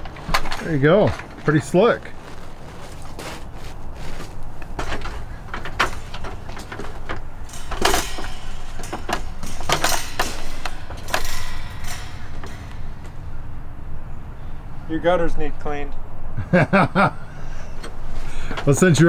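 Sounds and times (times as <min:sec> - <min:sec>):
shoes clanking on metal ladder rungs: 0:00.0 - 0:14.3.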